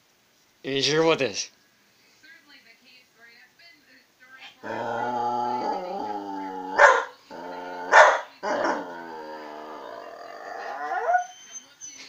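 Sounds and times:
dog vocalizing in long tones: 4.6s - 11.3s
dog barking: 6.8s - 7.2s, 7.9s - 8.9s.

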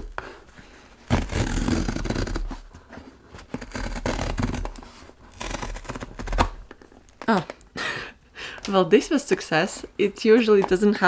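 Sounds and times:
cardboard tearing: 1.0s - 2.7s, 3.4s - 6.7s.

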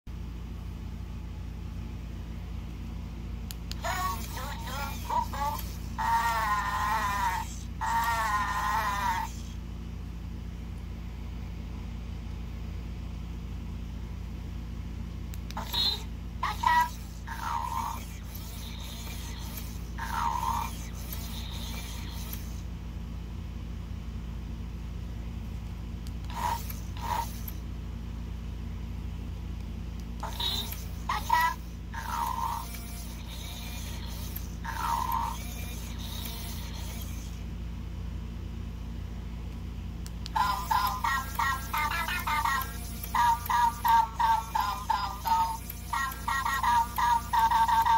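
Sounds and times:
air conditioner hum: 0.1s - 47.9s
toy talking in electronic voice: 3.7s - 9.5s, 15.5s - 22.6s, 26.3s - 27.6s, 30.2s - 37.4s, 40.3s - 47.9s.

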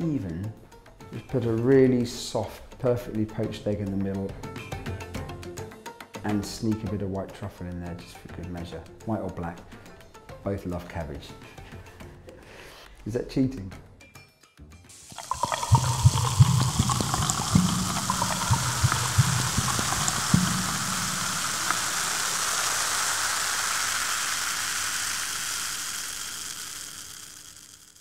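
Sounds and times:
fizzing carbonated bubbles: 14.9s - 28.0s
water pouring into a glass: 14.9s - 28.0s.

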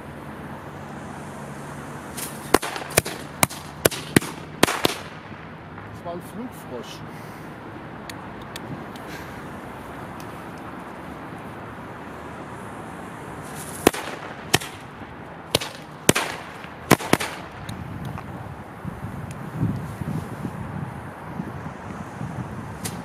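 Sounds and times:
firecracker hissing: 0.7s - 5.5s, 12.3s - 18.1s
firecracker bangs: 2.2s - 5.5s, 13.7s - 14.9s, 15.5s - 17.7s.

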